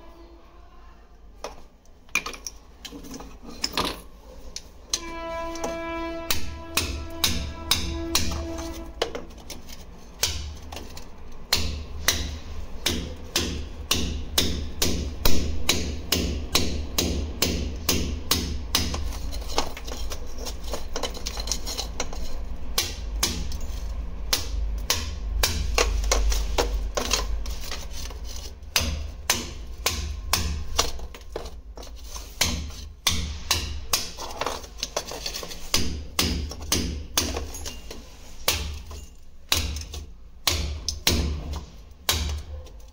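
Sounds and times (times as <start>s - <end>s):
hammer striking: 4.9s - 9.3s, 10.2s - 10.6s, 11.5s - 20.5s, 21.2s - 27.8s, 28.4s - 31.5s, 32.3s - 42.6s.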